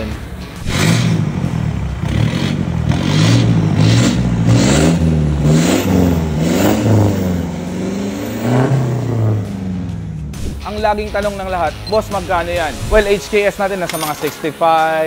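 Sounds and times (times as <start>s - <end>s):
diesel engine revving: 0.0s - 10.6s.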